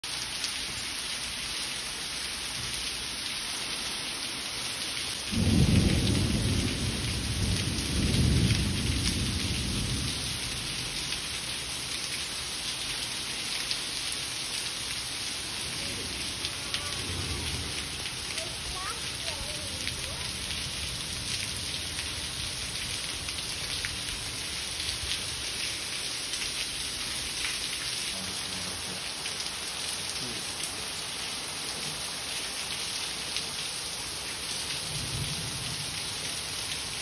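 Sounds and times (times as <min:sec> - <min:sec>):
heavy rain on paving: 0:00.0 - 0:37.0
thunder rumbling: 0:05.3 - 0:11.0, 0:15.6 - 0:23.5.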